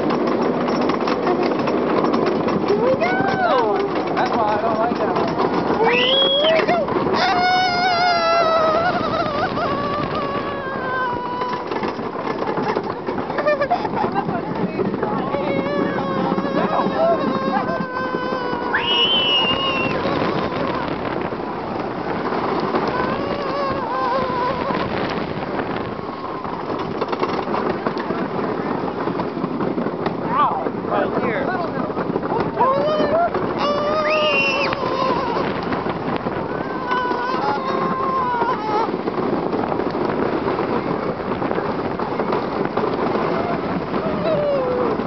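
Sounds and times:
roller coaster rattling on track: 0.0s - 45.0s
wind rushing over microphone: 0.0s - 45.0s
riders yelling: 30.2s - 39.4s.

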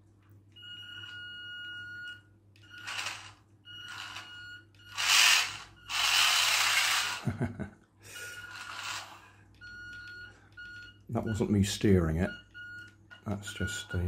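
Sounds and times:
toy car motor whirring: 2.8s - 7.2s, 8.4s - 9.3s.

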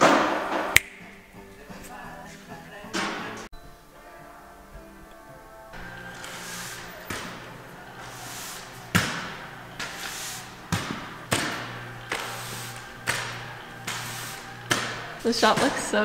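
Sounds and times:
steady low hum: 4.7s - 15.5s.

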